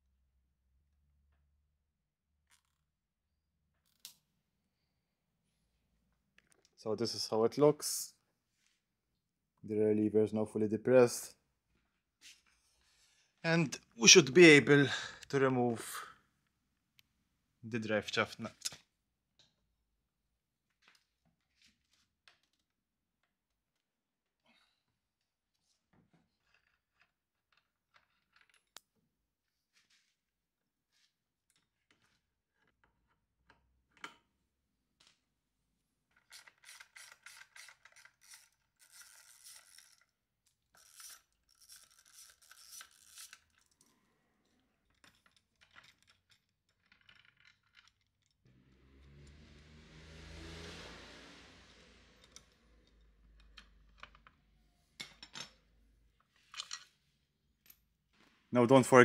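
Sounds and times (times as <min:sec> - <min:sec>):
socket wrench ratcheting: 0:36.2 - 0:40.0, 0:40.8 - 0:43.5.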